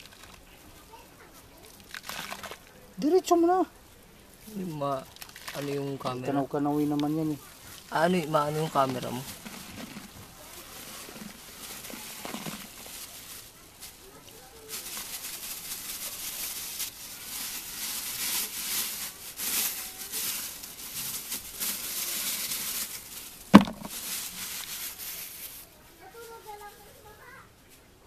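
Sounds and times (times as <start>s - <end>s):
plastic bag crinkling: 0.0s - 0.5s, 1.6s - 3.7s, 4.5s - 26.8s
sharp knock: 23.6s - 23.9s.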